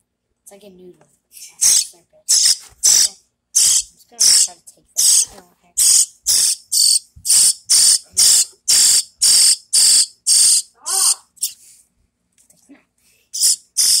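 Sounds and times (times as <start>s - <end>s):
baby bird begging chirps: 1.4s - 11.6s, 13.4s - 14.0s.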